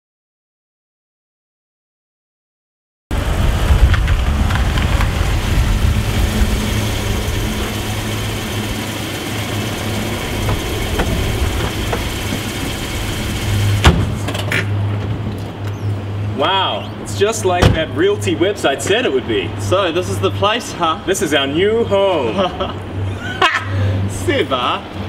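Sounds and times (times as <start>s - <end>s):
car engine idling: 3.2s - 14.4s.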